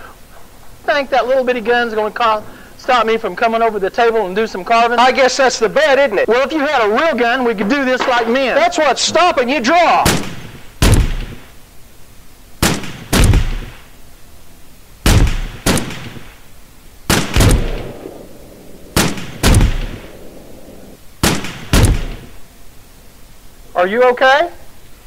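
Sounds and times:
pistol shots: 10.0s - 11.6s, 12.6s - 13.9s, 15.0s - 16.5s, 17.1s - 22.4s.

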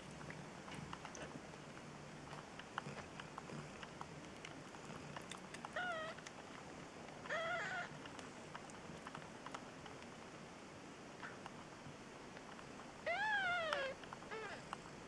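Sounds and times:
faint small clicks: 0.2s - 10.3s, 11.2s - 11.7s
kittens mewing: 7.3s - 8.0s, 13.1s - 14.7s.

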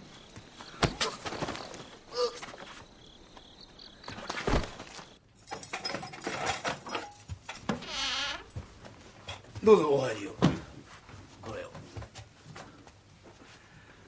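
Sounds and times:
crickets chirping: 0.0s - 8.8s.

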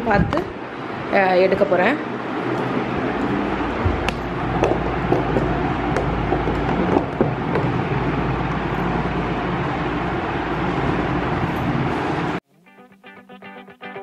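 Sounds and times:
steady whooshing hum: 0.0s - 12.4s.

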